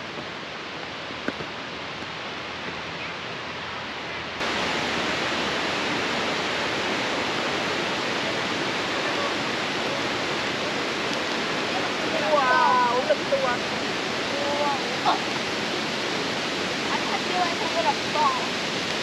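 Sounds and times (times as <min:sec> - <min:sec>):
waterfall rushing: 0:03.9 - 0:19.0.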